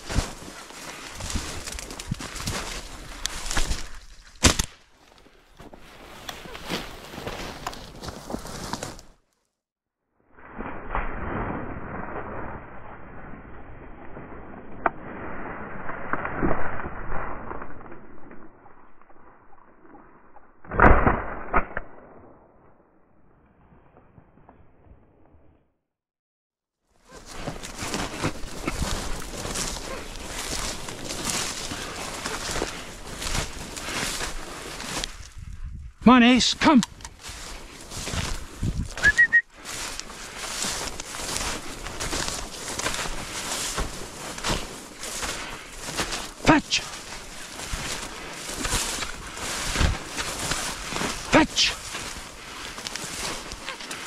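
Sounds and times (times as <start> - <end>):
rough rustling: 0.0 - 9.2, 27.0 - 36.0, 36.6 - 54.0
shotgun shot: 20.7 - 22.2
person whistling: 39.0 - 39.5.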